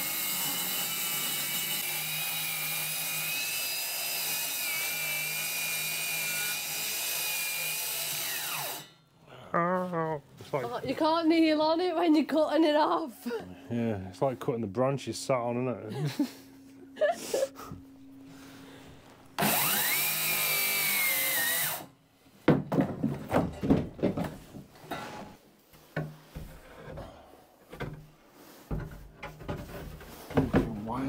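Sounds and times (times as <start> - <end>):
circular saw cutting plywood: 0.0 - 8.9, 19.4 - 21.9
boards knocking and clattering: 22.4 - 25.1, 28.7 - 30.9.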